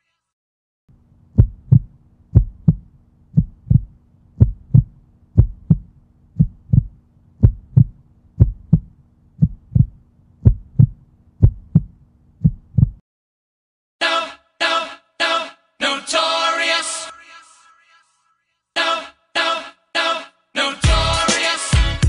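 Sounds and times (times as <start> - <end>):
low steady hum: 0.9 - 13.0
heartbeat thumps: 1.4 - 13.0.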